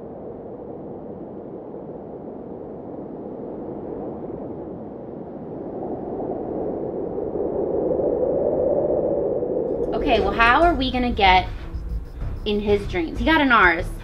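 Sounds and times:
steady rushing noise: 0:09.6 - 0:13.8.

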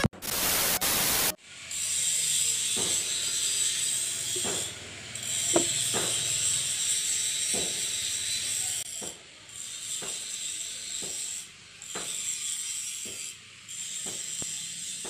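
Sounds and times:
tv static noise: 0:00.0 - 0:01.4.

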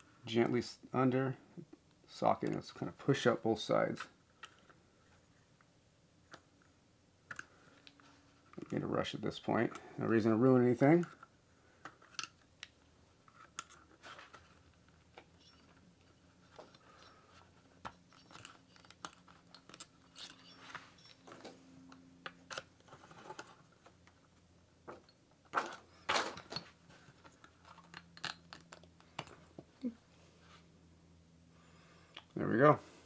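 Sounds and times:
screwdriver clicking and scraping: 0:15.2 - 0:22.7.

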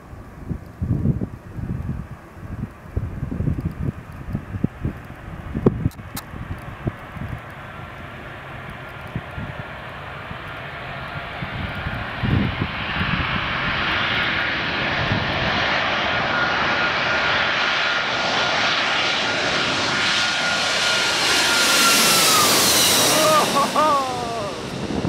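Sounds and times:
jet engine rumble: 0:00.0 - 0:25.0.

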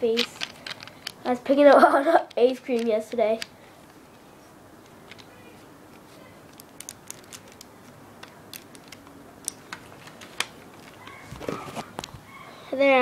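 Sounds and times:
plastic bricks clicking and rattling: 0:00.1 - 0:01.2, 0:06.5 - 0:11.2.

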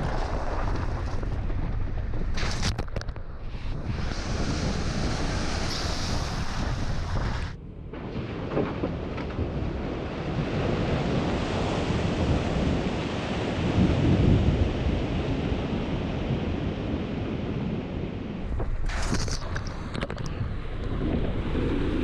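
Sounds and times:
tyres churning water and mud: 0:00.0 - 0:22.0
mud spattering against vehicle: 0:18.4 - 0:20.3.

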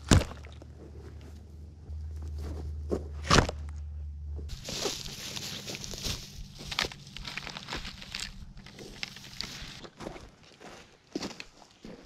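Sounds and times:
rustling: 0:00.6 - 0:09.9.

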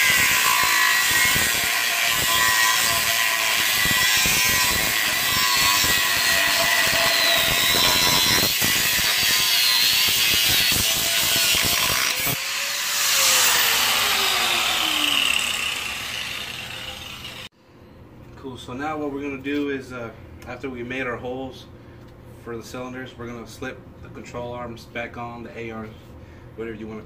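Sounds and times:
angle grinder cutting steel: 0:00.0 - 0:17.5
grinder disc spinning down: 0:03.5 - 0:17.5.

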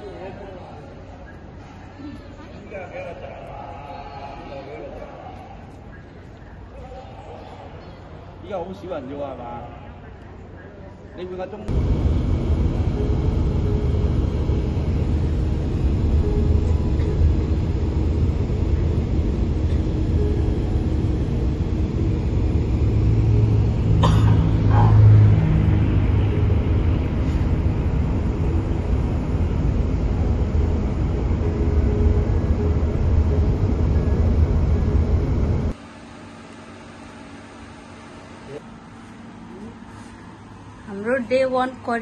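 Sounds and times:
bus engine and tyres rumbling: 0:11.7 - 0:35.8.

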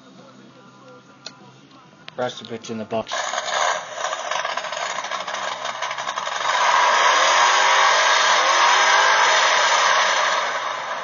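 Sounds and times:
motor vehicle rushing noise: 0:03.1 - 0:11.0.

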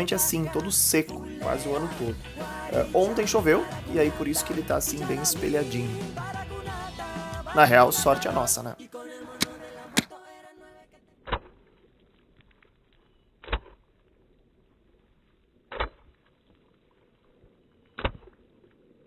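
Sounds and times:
music track: 0:00.0 - 0:10.1.

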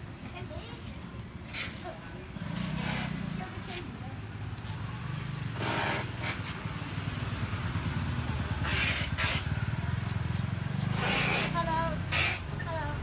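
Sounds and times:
motorcycle engine idling: 0:06.6 - 0:08.6.

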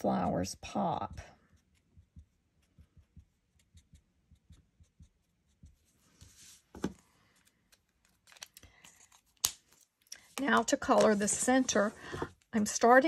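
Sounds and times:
marker scratching on cardstock: 0:01.5 - 0:06.5.

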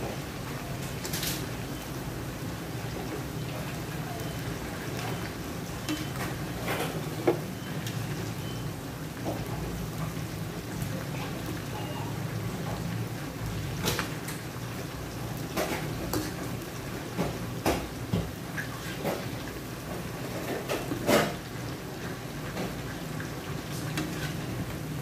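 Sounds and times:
shrimp sizzling in oil: 0:00.1 - 0:25.0
metal turner clinking and scraping wok: 0:05.8 - 0:07.0, 0:23.7 - 0:24.8.

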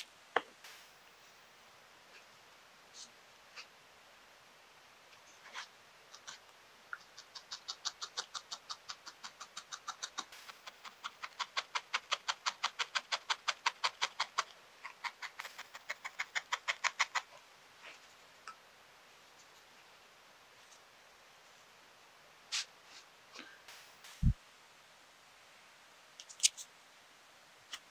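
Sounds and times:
felting needle poking wool: 0:05.2 - 0:18.1.

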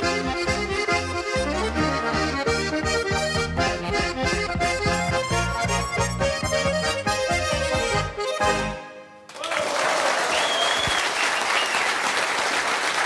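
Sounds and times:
guitar: 0:00.0 - 0:08.8
button accordions: 0:00.0 - 0:09.3
audience applause: 0:09.3 - 0:13.0
person whistling: 0:10.3 - 0:11.9.

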